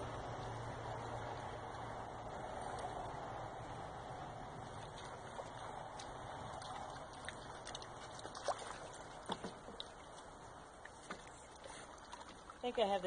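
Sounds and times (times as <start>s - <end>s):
faint wash of water: 0.0s - 13.0s
paddle splashes and drips: 0.4s - 13.0s.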